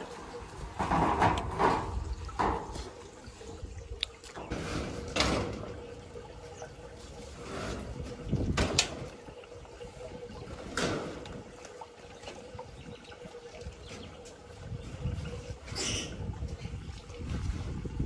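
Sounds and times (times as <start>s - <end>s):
metal roofing sheets scraping: 4.4s - 5.8s, 7.2s - 8.8s.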